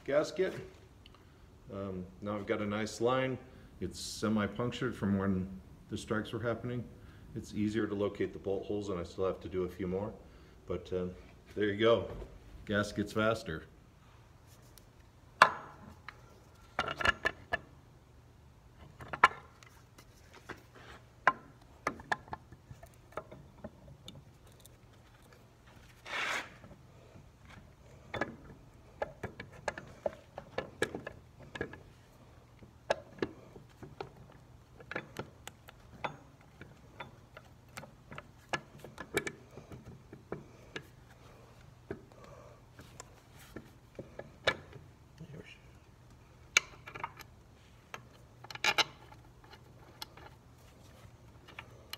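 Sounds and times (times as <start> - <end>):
metal clicks and knocks: 15.4 - 17.8, 18.8 - 20.6, 21.2 - 25.4, 27.4 - 45.0, 46.1 - 51.9
metal scraping rub: 25.8 - 26.7.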